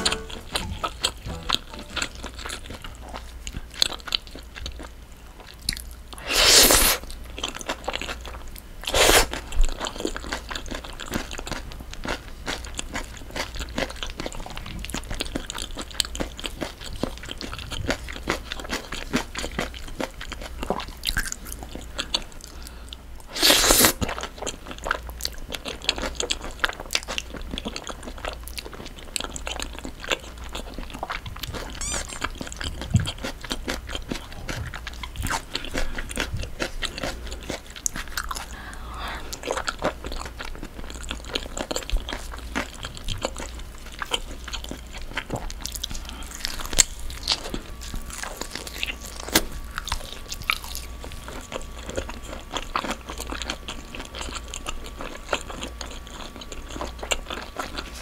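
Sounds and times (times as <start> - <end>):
chewing with wet mouth clicks: 1.8 - 6.0, 24.0 - 38.7, 39.3 - 58.0
loud noodle slurps: 6.2 - 7.0, 8.9 - 9.4, 23.4 - 24.0.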